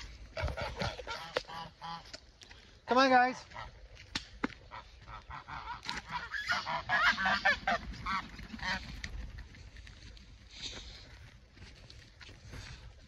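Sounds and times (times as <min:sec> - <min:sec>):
geese honking: 0:00.0 - 0:02.2, 0:04.6 - 0:09.1.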